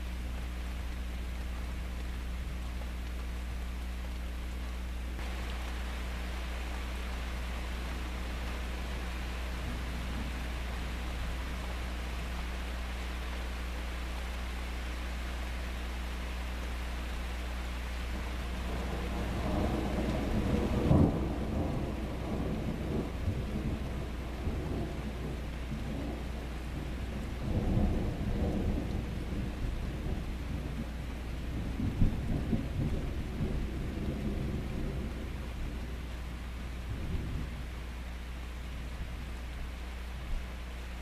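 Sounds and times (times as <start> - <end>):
steady rain: 0.0 - 41.0
thunder rumbling: 18.2 - 36.0.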